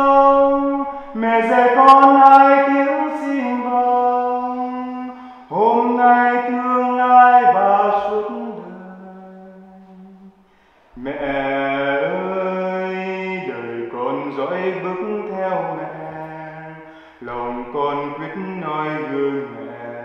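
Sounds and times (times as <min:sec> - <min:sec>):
man singing hymn unaccompanied: 0:00.0 - 0:20.0
man taking breath: 0:05.2 - 0:05.5, 0:10.4 - 0:11.0, 0:16.9 - 0:17.2.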